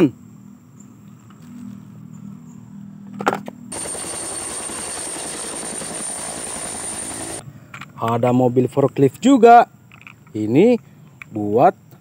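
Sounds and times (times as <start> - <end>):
helicopter hovering: 3.7 - 7.4
plastic toys clacking: 9.9 - 10.4.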